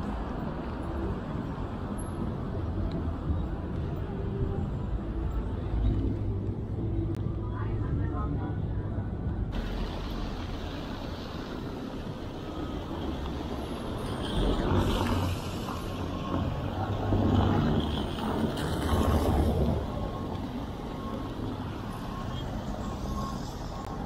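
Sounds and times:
traffic rumble: 0:00.0 - 0:24.0
tyre hiss on wet road: 0:14.0 - 0:16.1.

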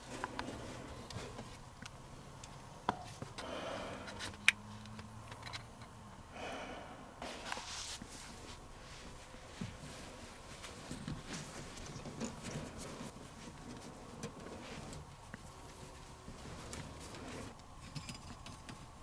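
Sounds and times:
rustling of insulation: 0:00.0 - 0:02.3, 0:07.2 - 0:19.0
person breathing: 0:00.1 - 0:01.4, 0:03.4 - 0:04.4, 0:06.2 - 0:08.4.

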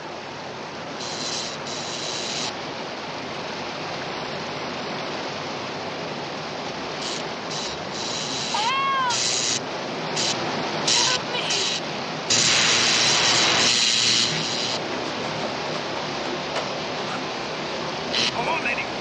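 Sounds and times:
floodwater rushing: 0:00.0 - 0:19.0
woman crying out: 0:08.6 - 0:09.2, 0:10.9 - 0:11.8.

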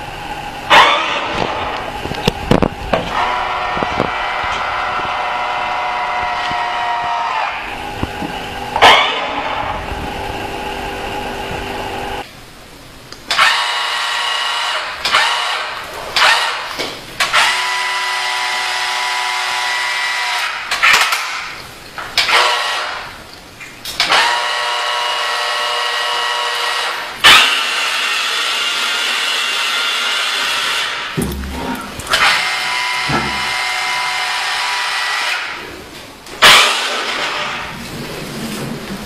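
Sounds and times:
toy electric motors whining: 0:32.0 - 0:35.6.

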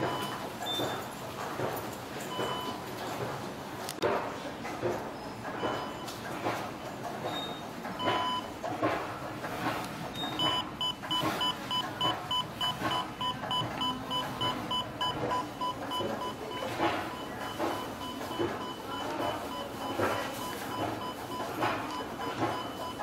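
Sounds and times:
electronic beep of lift panel: 0:10.2 - 0:23.0.

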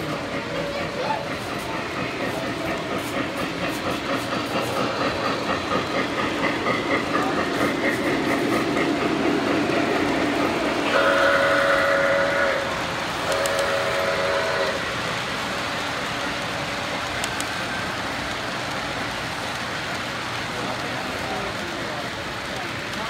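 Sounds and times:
model steam locomotive chuffing: 0:00.0 - 0:23.0
chord steam whistle blasts: 0:10.9 - 0:14.8.

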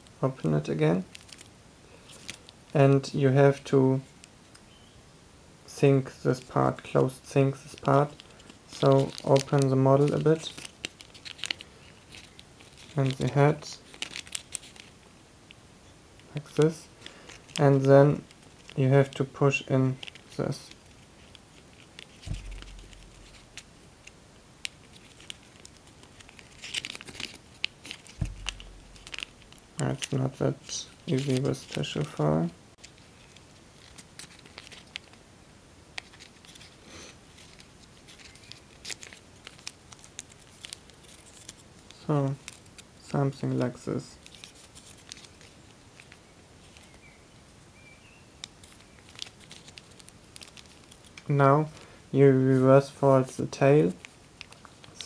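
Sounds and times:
foil paper crinkling: 0:01.0 - 0:02.6, 0:07.6 - 0:15.0, 0:16.3 - 0:32.2, 0:32.8 - 0:35.2, 0:36.0 - 0:47.1, 0:48.4 - 0:51.9, 0:53.0 - 0:55.0.

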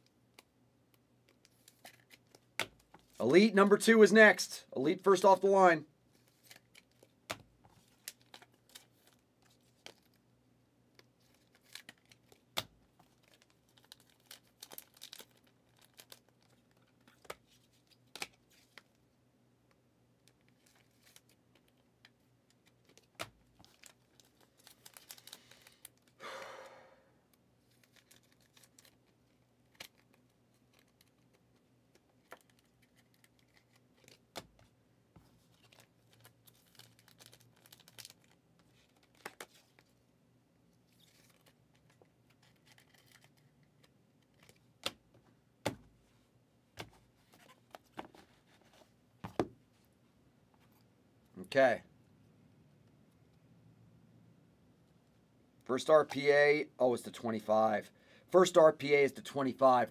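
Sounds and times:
wrapper crinkling tear: 0:13.2 - 0:17.3, 0:22.8 - 0:26.1, 0:35.6 - 0:39.4, 0:42.4 - 0:43.4.

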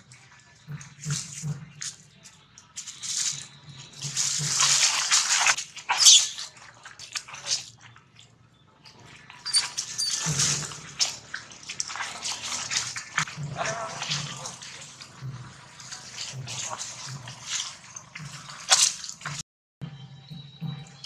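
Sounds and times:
baby monkey screaming: 0:05.9 - 0:06.5, 0:09.4 - 0:10.3.

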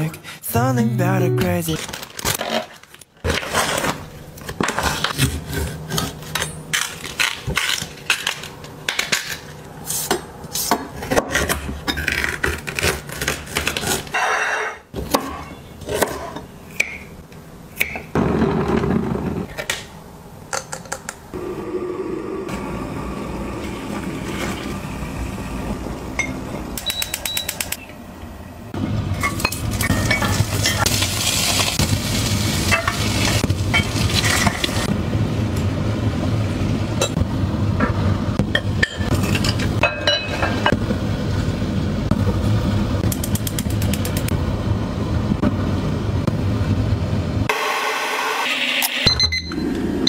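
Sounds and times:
utensils clinking on dishes: 0:29.2 - 0:30.9, 0:38.5 - 0:40.7.

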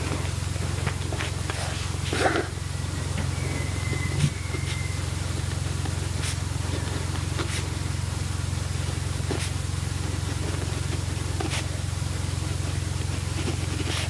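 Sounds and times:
pen scratching on paper: 0:09.2 - 0:11.8, 0:12.4 - 0:14.0.

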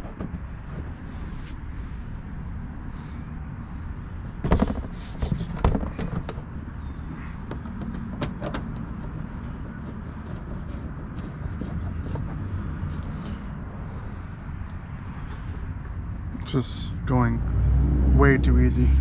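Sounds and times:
plastic liner knocking and clattering: 0:04.4 - 0:06.4
low steady rumble: 0:08.8 - 0:19.0.

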